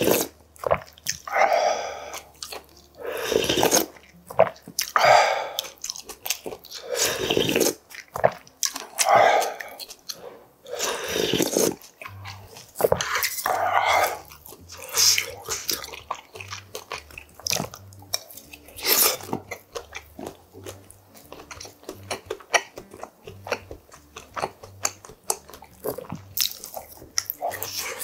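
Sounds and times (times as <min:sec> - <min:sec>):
slurping soup: 0:00.0 - 0:17.8, 0:18.5 - 0:21.6, 0:27.2 - 0:28.0
wet chewing and biting: 0:00.0 - 0:28.0.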